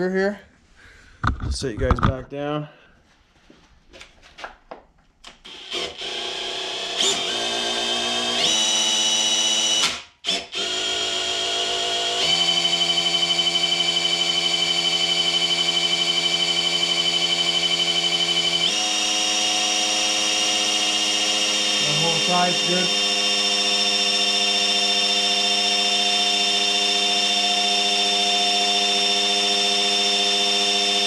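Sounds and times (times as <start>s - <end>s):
cordless drill motor whine: 5.4s - 31.0s.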